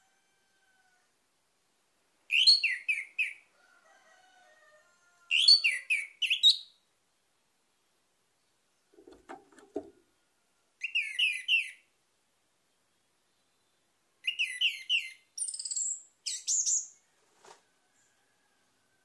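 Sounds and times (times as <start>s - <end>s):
thrush singing whistled notes: 2.3s - 3.4s, 5.3s - 6.8s, 10.8s - 11.9s, 14.2s - 17.0s.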